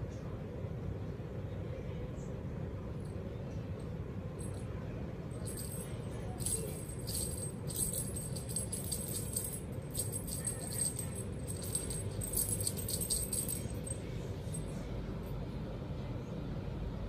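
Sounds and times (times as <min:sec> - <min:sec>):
low steady hum: 0:00.0 - 0:17.0
small jingling rattle shaken: 0:05.4 - 0:14.9.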